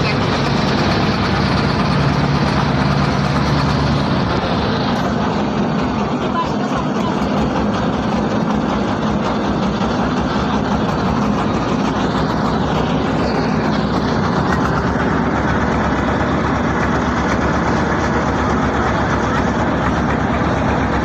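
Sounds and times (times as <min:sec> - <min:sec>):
boat engine droning: 0:00.0 - 0:21.0.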